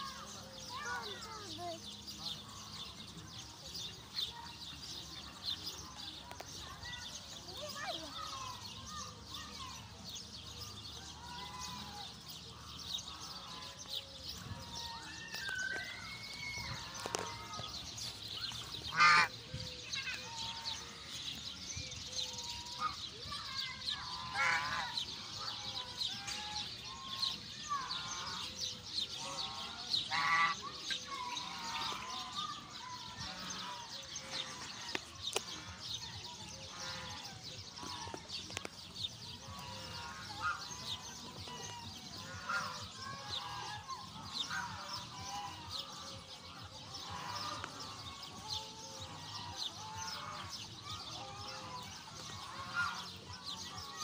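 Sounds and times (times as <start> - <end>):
high chirping birds: 0.0 - 54.0
geese honking: 18.7 - 19.4, 24.0 - 32.6, 36.7 - 38.2, 39.5 - 54.0.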